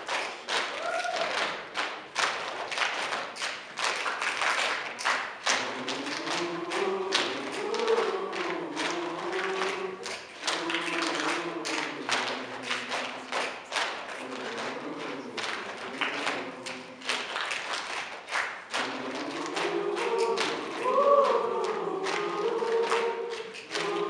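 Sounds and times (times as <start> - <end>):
hand claps and pats: 0.0 - 24.0
choir singing unaccompanied: 5.4 - 17.4, 18.7 - 24.0.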